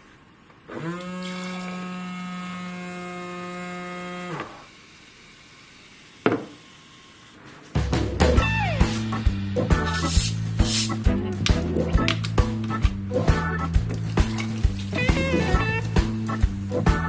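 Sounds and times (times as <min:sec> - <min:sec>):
small electric pump humming: 0:00.6 - 0:07.6, 0:14.0 - 0:17.0.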